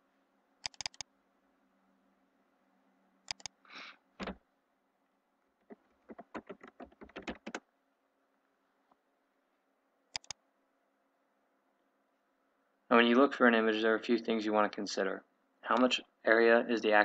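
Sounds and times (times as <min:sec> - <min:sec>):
keyboard typing: 0:00.6 - 0:01.1, 0:03.3 - 0:03.6, 0:05.6 - 0:07.6, 0:10.1 - 0:10.4
sharp clicks: 0:00.6 - 0:01.1, 0:03.3 - 0:03.6, 0:10.1 - 0:10.4
mouse double click: 0:10.2 - 0:10.4.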